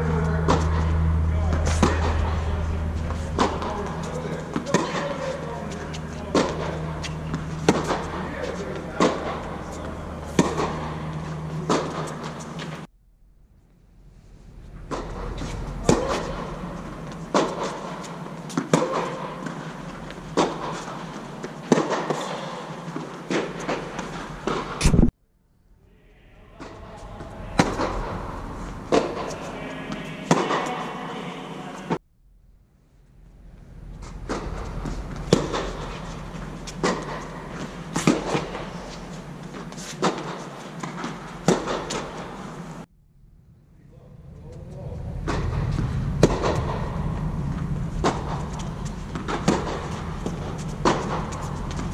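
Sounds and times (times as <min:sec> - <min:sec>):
steady low hum: 0:00.0 - 0:51.9
tennis racket strikes: 0:00.1 - 0:12.9, 0:14.9 - 0:25.1, 0:27.6 - 0:31.1, 0:34.3 - 0:42.7
tennis ball bounces: 0:03.1 - 0:12.8, 0:17.0 - 0:25.1, 0:39.5 - 0:42.6.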